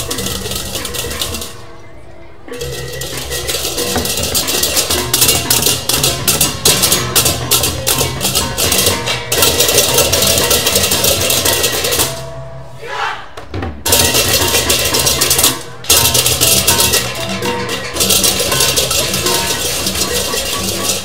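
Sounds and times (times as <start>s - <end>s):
hand drums: 0.0s - 1.7s, 2.5s - 12.6s, 13.7s - 21.0s
crashing hand cymbals: 2.6s - 12.6s, 13.9s - 21.0s
booming gongs: 13.9s - 21.0s.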